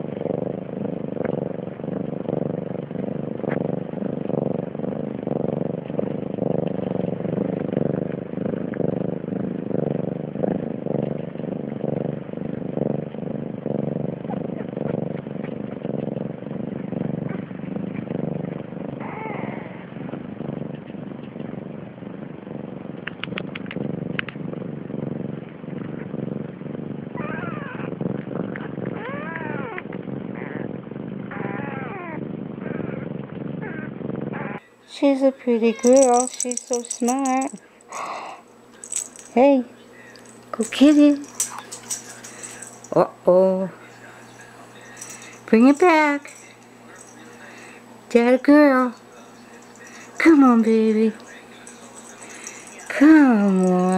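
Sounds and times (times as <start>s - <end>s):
cat purring: 0.0s - 53.9s
kittens mewing: 35.6s - 39.3s.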